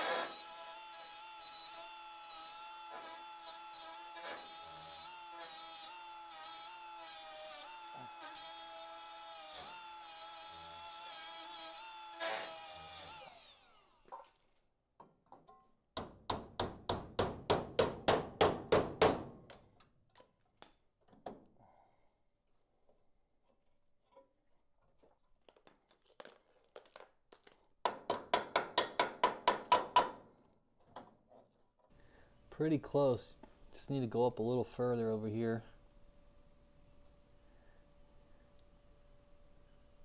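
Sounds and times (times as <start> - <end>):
die grinder cutting sheet steel: 0.0 - 14.1.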